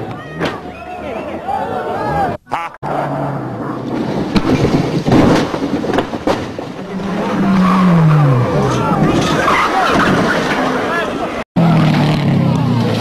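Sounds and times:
car engine: 0:02.3 - 0:13.0
car crashing into trees: 0:03.8 - 0:11.2.

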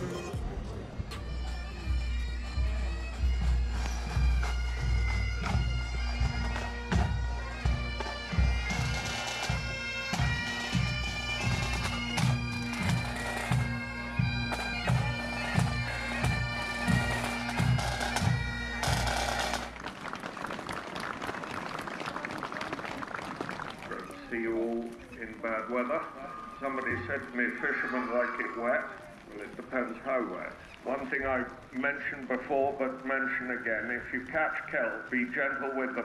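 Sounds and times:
bagpipes playing over drone: 0:01.1 - 0:19.7.

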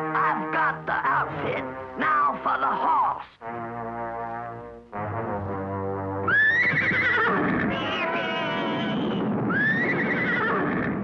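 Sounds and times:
cartoon horse whinnying: 0:06.3 - 0:11.0.

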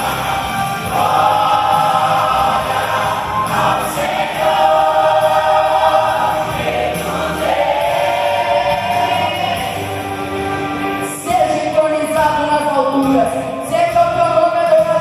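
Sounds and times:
choir singing gospel song: 0:00.0 - 0:11.1.

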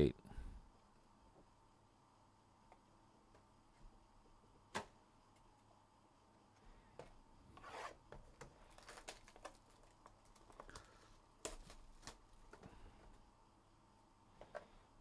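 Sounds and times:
plastic wrap crinkling and tearing: 0:08.6 - 0:12.3.

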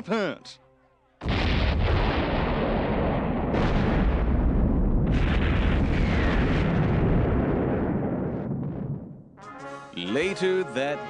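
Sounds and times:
explosion blasts: 0:01.2 - 0:09.3
explosion deep rumble: 0:01.2 - 0:09.3.

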